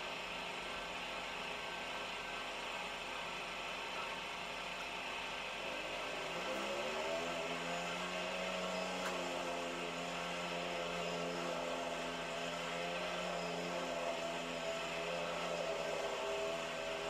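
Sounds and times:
small quad bike engine running: 0:05.7 - 0:17.0.

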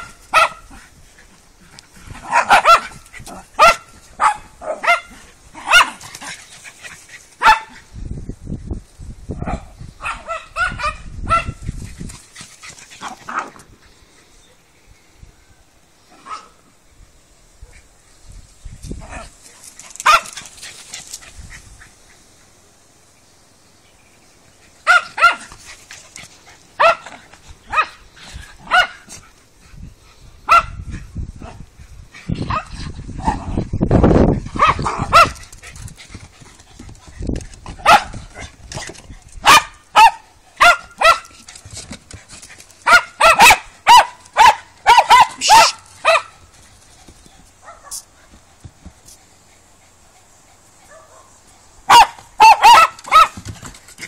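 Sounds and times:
dogs barking: 0:00.0 - 0:00.8, 0:02.2 - 0:03.0, 0:03.6 - 0:06.3, 0:07.4 - 0:07.8, 0:20.0 - 0:20.4, 0:24.8 - 0:25.6, 0:26.8 - 0:28.0, 0:28.6 - 0:29.1, 0:30.5 - 0:31.6, 0:34.6 - 0:35.4, 0:37.8 - 0:38.5, 0:39.4 - 0:41.3, 0:42.8 - 0:46.5, 0:47.6 - 0:48.0, 0:50.8 - 0:53.5.

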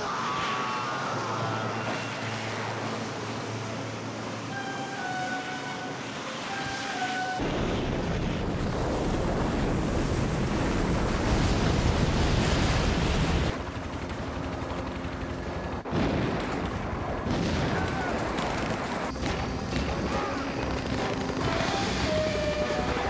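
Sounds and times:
rumbling avalanche: 0:07.4 - 0:13.6
snowblower roaring: 0:18.1 - 0:23.0.

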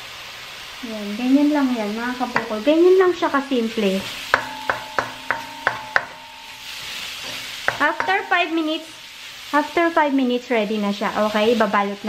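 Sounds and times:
rice sizzling: 0:00.0 - 0:12.0
wooden spoon scraping a pan: 0:02.1 - 0:09.5.

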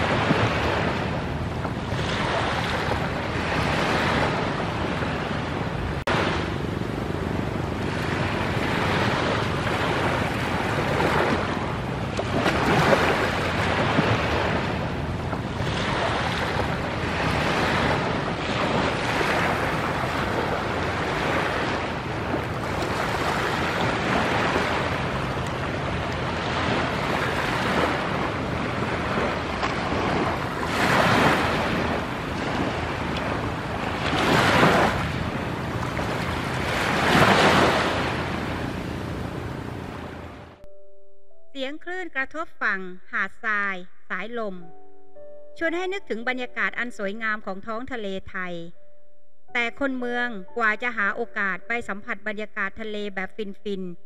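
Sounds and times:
small waves breaking on beach: 0:00.0 - 0:40.5.

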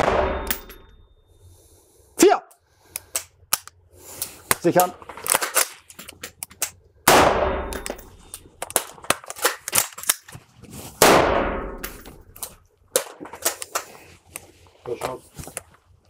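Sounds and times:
gunshots echoing indoors: 0:00.0 - 0:00.9, 0:07.0 - 0:08.1, 0:11.0 - 0:12.0
metallic clicks of rifle handling: 0:02.9 - 0:06.8, 0:07.7 - 0:10.4.

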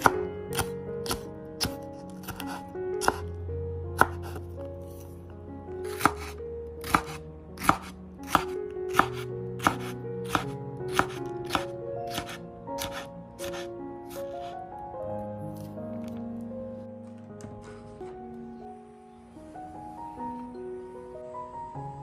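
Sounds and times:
knife chopping on cutting board: 0:00.0 - 0:03.2, 0:04.0 - 0:04.5, 0:05.8 - 0:14.2.

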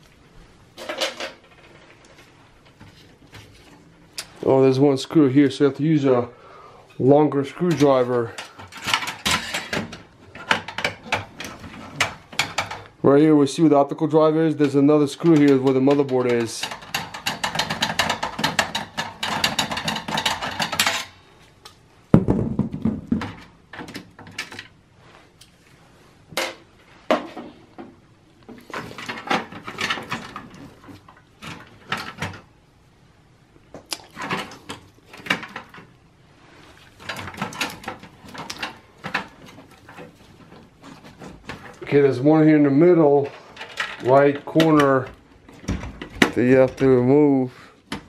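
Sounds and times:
metallic clicks and rattles: 0:14.6 - 0:21.8, 0:43.2 - 0:46.9
loud knock: 0:22.1 - 0:23.2.

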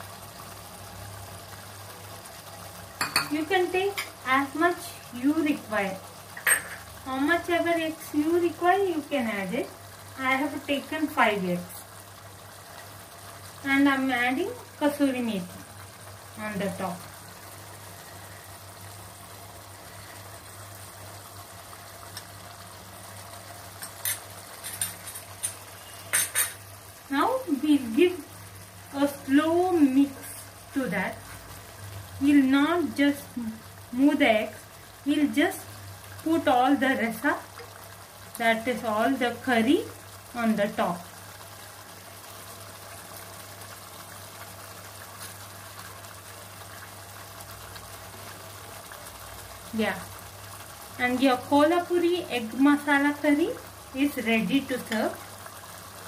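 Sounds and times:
thick gravy bubbling: 0:00.0 - 0:56.0
spoon stirring in pot: 0:23.8 - 0:26.6
steel utensils clinking: 0:23.8 - 0:26.6.

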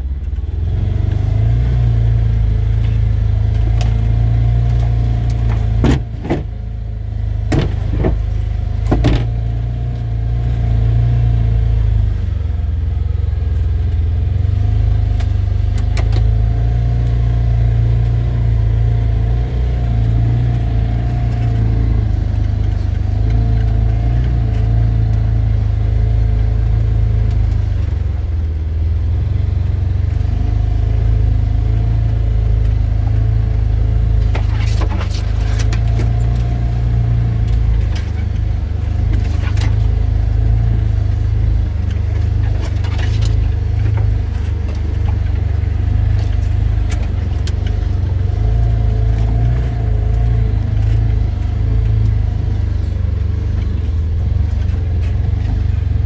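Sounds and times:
vehicle engine rumbling: 0:00.0 - 0:56.0
sticks snapping under vehicle: 0:34.2 - 0:40.0, 0:41.8 - 0:55.8.

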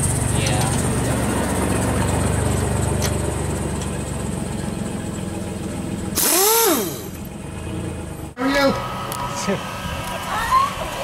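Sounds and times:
pickup truck engine idling: 0:00.0 - 0:11.0
power wrench whirring: 0:06.2 - 0:07.2.

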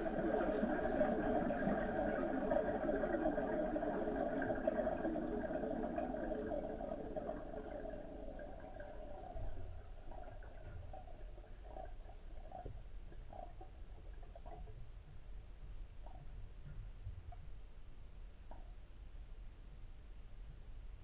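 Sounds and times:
underwater gas bubbling: 0:00.0 - 0:16.7.

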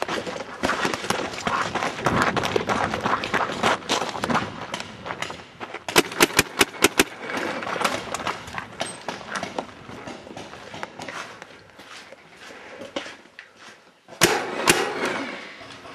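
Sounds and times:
running footsteps: 0:00.0 - 0:14.2
rapid gunshots: 0:05.9 - 0:07.2, 0:14.2 - 0:15.2.

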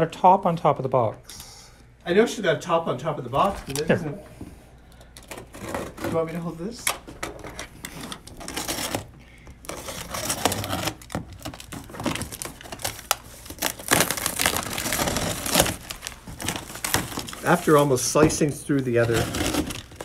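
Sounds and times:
plastic crinkling and rustling: 0:04.9 - 0:20.0
packaging tearing: 0:07.8 - 0:18.1, 0:18.7 - 0:20.0.

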